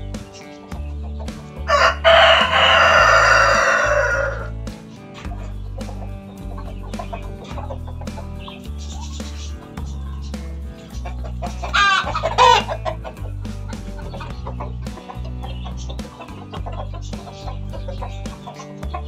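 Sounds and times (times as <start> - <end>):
background music with bass line: 0.0 - 19.0
chickens clucking: 0.0 - 19.0
chicken wavering call: 1.7 - 4.6, 10.9 - 13.3.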